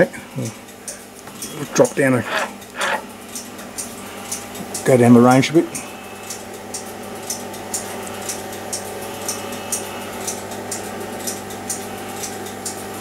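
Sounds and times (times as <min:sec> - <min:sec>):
electronic equipment hum: 0:00.0 - 0:13.0.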